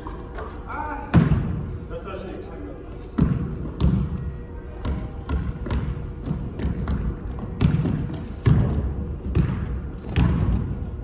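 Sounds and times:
basketball bouncing on court: 3.2s - 4.2s, 4.8s - 10.9s.

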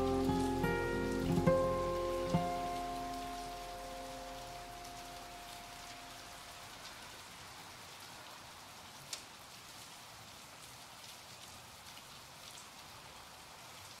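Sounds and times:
held musical chord: 0.0s - 6.6s
raindrop ticks: 0.0s - 7.2s, 9.0s - 9.9s
faint steady rain: 0.0s - 14.0s.

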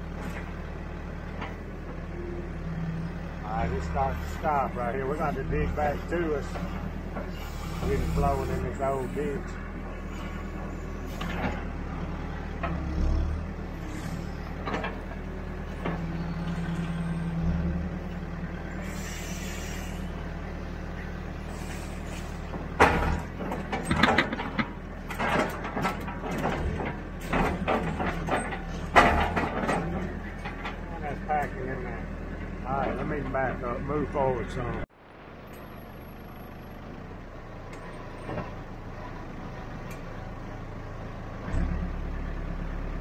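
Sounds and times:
diesel engine running: 0.0s - 43.0s
hydraulics straining: 3.4s - 34.8s.

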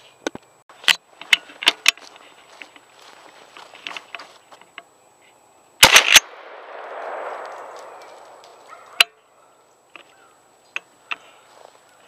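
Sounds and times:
gunshot with echo: 5.8s - 9.0s.

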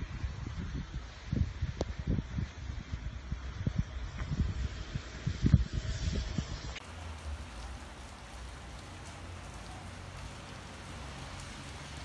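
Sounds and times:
wind buffeting microphone: 0.0s - 12.0s
steady rain hissing: 6.8s - 12.0s.

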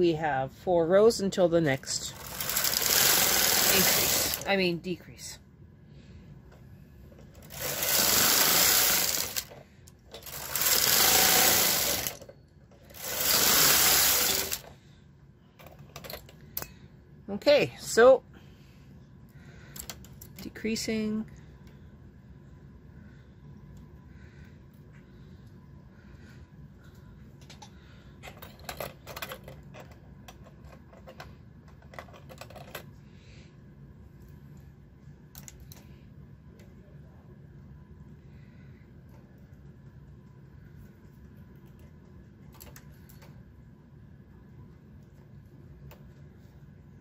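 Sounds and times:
knitting machine carriage passing: 1.8s - 4.6s, 7.3s - 14.7s.

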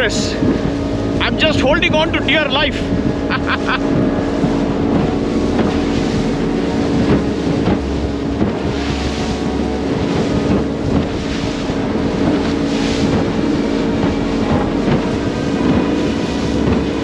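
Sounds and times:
outboard motor humming: 0.0s - 17.0s
water rushing past hull: 0.0s - 17.0s
wind buffeting microphone: 0.0s - 17.0s.

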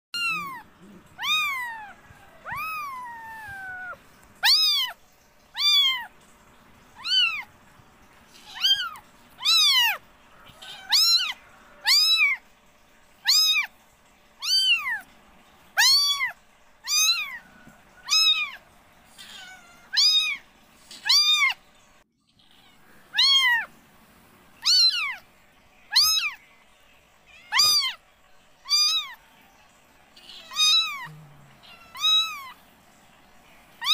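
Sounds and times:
kittens mewing: 0.2s - 6.2s, 7.0s - 7.5s, 8.3s - 12.4s, 14.4s - 15.1s, 15.8s - 21.6s, 22.4s - 23.7s, 24.6s - 25.2s, 25.9s - 26.4s, 27.3s - 28.0s, 28.6s - 29.2s, 30.1s - 32.6s.

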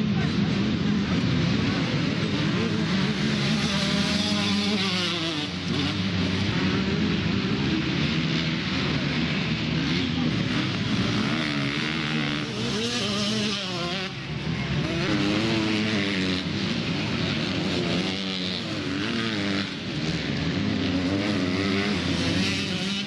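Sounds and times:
motocross bike engines revving: 0.0s - 23.0s.

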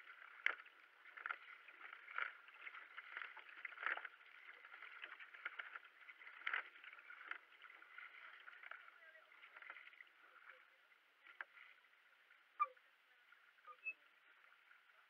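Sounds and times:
paddle splashing into water: 0.0s - 11.9s
water rushing along hull: 0.0s - 15.0s.

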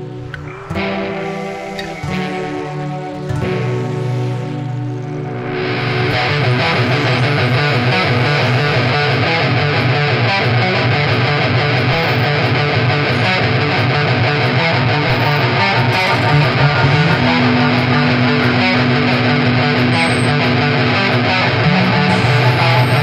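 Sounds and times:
electric guitar band music: 0.0s - 23.0s.

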